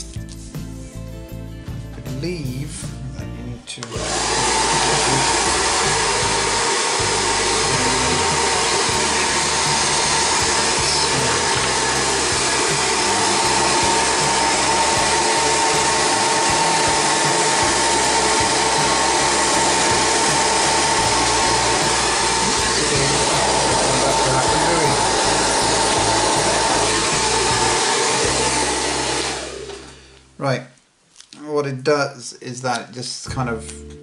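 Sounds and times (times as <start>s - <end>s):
hair dryer blowing: 3.8s - 30.2s.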